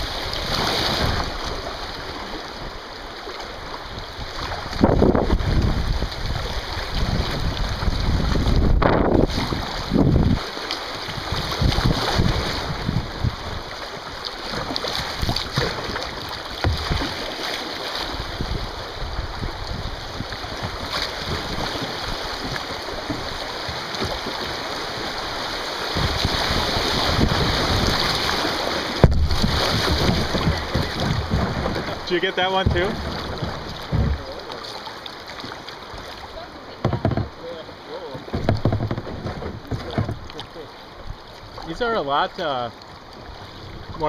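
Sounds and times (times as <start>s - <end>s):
river water rushing: 0.0s - 44.0s
wind on microphone: 4.2s - 13.7s, 26.0s - 34.4s.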